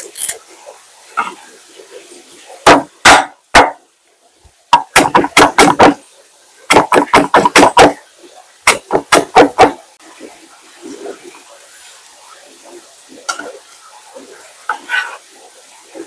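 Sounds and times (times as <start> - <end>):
knife chopping on cutting board: 4.8 - 6.0, 6.7 - 8.0, 8.7 - 9.8.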